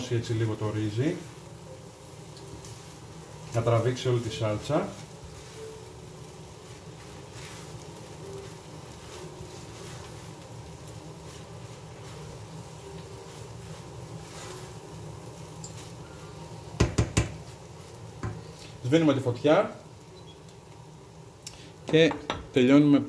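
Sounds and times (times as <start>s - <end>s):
induction hob electrical buzz: 0.0s - 23.0s
wooden spatula scraping pan: 11.2s - 15.0s.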